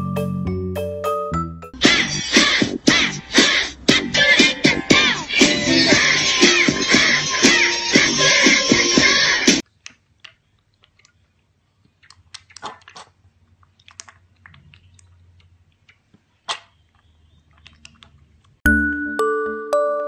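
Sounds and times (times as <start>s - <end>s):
piglet slurping milk: 10.2s - 18.6s.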